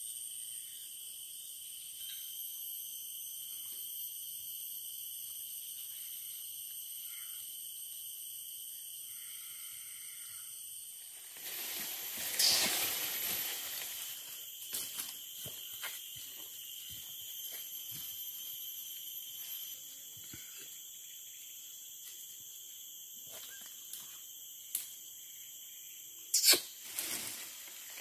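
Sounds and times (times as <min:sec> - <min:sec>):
shrill insect chorus: 0:00.0 - 0:28.0
rustling: 0:11.2 - 0:14.4.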